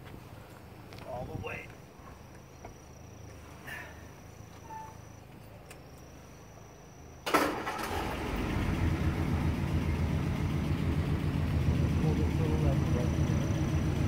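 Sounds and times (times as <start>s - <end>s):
car engine running: 7.9s - 14.0s.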